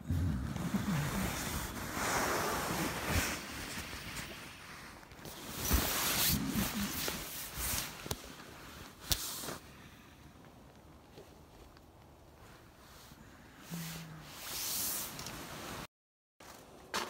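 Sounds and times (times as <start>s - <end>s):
fabric rustling: 0.6s - 9.6s, 14.0s - 15.9s.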